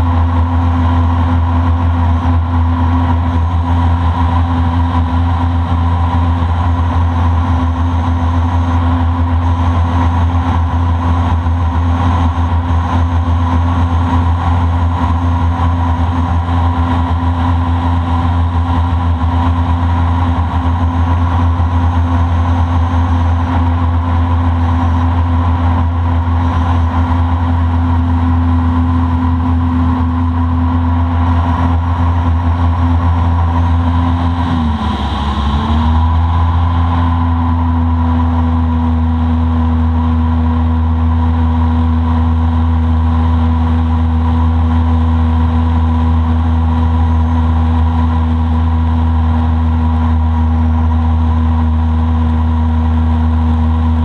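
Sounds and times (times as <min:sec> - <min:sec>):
boat motor droning: 0:00.0 - 0:54.0.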